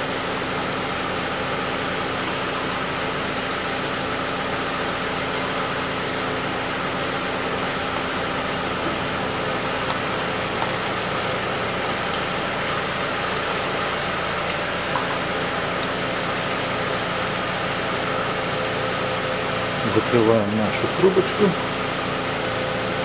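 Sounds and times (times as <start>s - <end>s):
engine idling hum: 0.0s - 23.0s.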